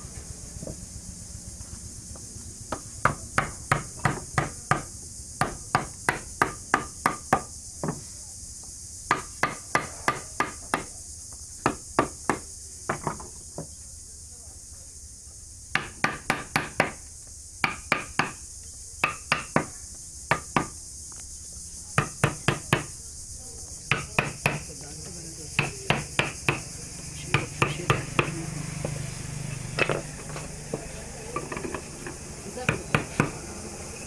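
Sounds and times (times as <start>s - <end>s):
high insect drone: 0.0s - 34.0s
hammer striking chisel into wood: 2.7s - 8.0s, 9.1s - 10.9s, 11.6s - 13.3s, 15.7s - 17.0s, 17.6s - 18.4s, 19.0s - 20.8s, 22.0s - 22.9s, 23.9s - 24.7s, 25.6s - 26.6s, 27.3s - 29.0s, 31.4s - 33.4s.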